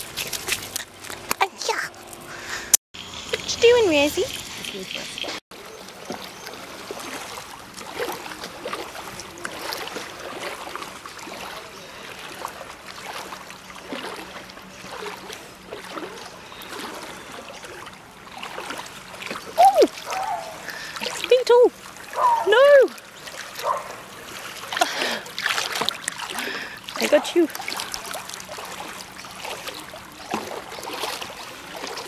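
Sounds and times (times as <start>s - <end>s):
small splashes: 0.0s - 1.4s, 3.2s - 32.0s
water lapping against boat: 0.0s - 32.0s
person calling out: 19.6s - 19.9s.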